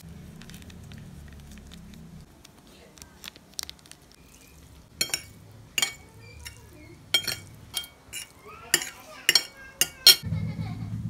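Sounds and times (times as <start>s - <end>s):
cutlery clinking on plate: 5.0s - 10.2s.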